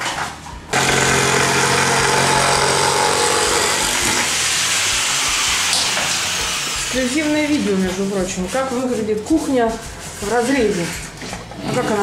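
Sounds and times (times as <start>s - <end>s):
power tool motor whirring: 0.7s - 7.6s.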